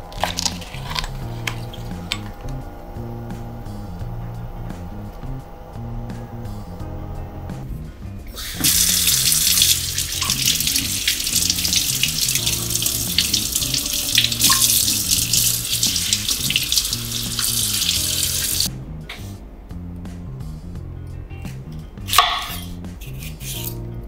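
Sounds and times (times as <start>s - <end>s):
tap water splashing in sink: 8.6s - 18.7s.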